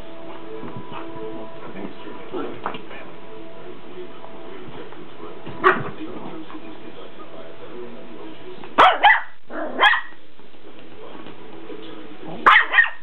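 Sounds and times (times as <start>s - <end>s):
small dog barking: 5.6s - 5.9s, 8.8s - 10.2s, 12.4s - 13.0s.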